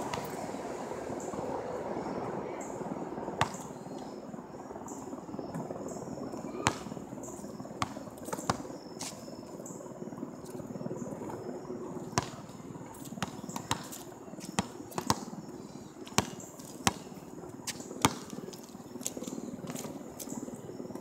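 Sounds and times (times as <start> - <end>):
insects chirping: 0.2 - 21.0
basketball hitting asphalt and hoop: 3.4 - 3.6, 6.6 - 7.0, 7.8 - 8.6, 12.1 - 12.4, 13.2 - 13.9, 14.6 - 15.3, 16.1 - 17.1, 18.0 - 18.3.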